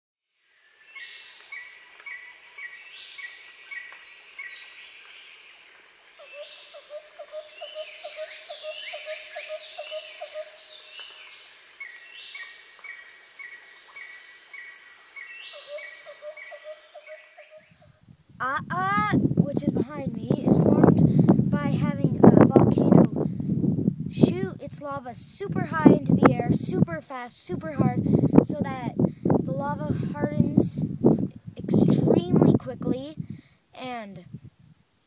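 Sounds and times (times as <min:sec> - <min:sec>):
high insect drone: 0:00.3 - 0:17.9
short repeated bird chirps: 0:06.2 - 0:17.9.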